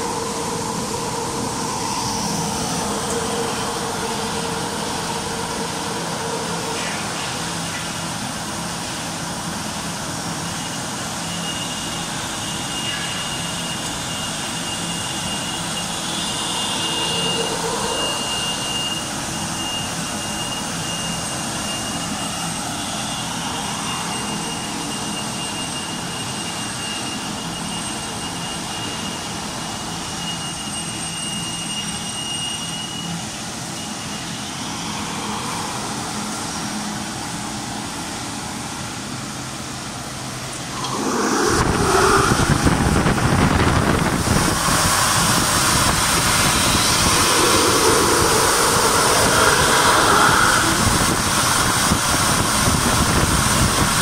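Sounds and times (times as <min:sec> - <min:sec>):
washing machine rushing and hum: 0:00.0 - 0:20.2, 0:33.6 - 0:38.2, 0:40.5 - 0:54.0
thin high whine: 0:00.0 - 0:54.0.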